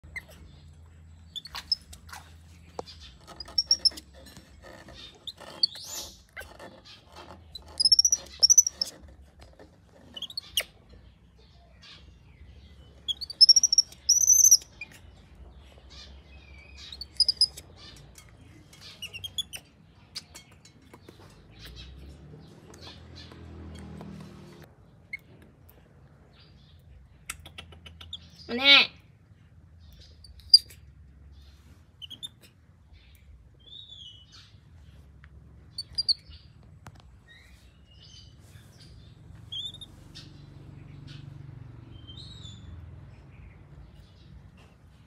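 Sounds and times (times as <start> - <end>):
baby monkey screaming: 13.1 - 14.6.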